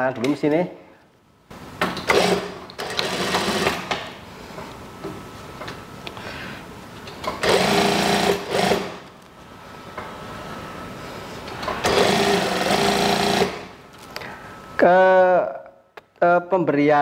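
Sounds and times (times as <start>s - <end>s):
sewing machine stitching: 2.0s - 4.0s, 7.4s - 9.0s, 11.8s - 13.6s.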